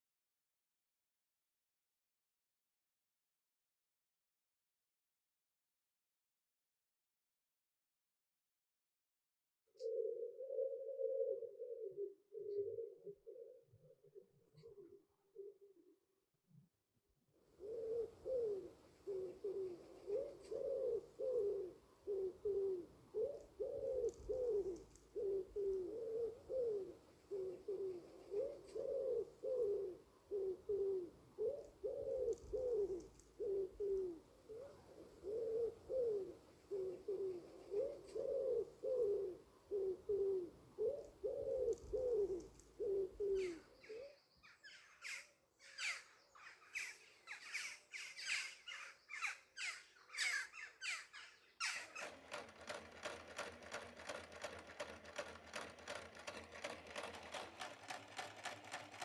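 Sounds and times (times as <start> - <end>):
pigeon cooing: 9.8 - 16.0, 17.6 - 44.2
harsh scratchy bird calls: 44.6 - 59.0.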